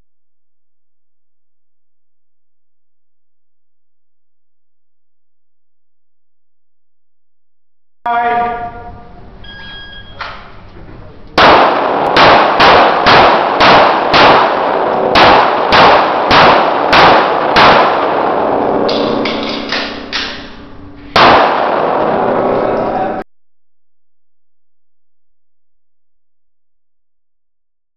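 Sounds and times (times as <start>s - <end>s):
pistol shots echoing indoors: 11.4s - 22.7s.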